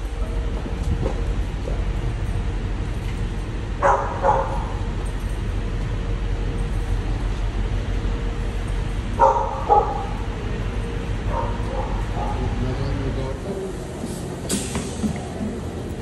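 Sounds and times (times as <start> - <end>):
low drone of vehicle deck: 0.0 - 16.0
dog barking: 3.8 - 4.8, 9.2 - 10.2, 11.3 - 12.5.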